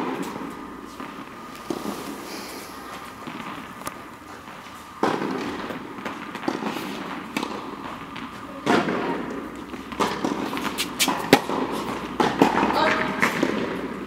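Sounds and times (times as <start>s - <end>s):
tennis ball bouncing on court: 5.0s - 14.0s
tennis ball struck by racquet: 5.0s - 14.0s.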